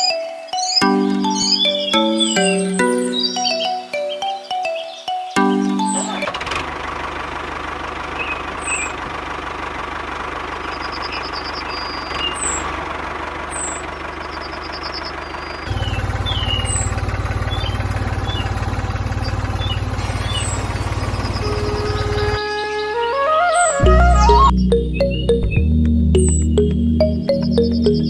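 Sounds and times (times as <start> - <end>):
birds chirping: 0.0 - 6.6, 8.0 - 28.0
motor running: 6.1 - 22.4.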